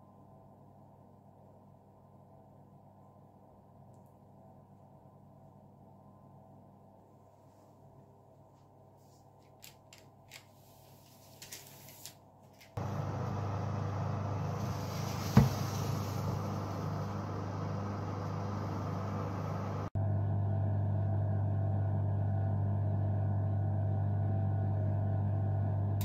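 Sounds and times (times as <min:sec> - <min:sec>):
fan oven humming and hissing: 0:10.3 - 0:26.0.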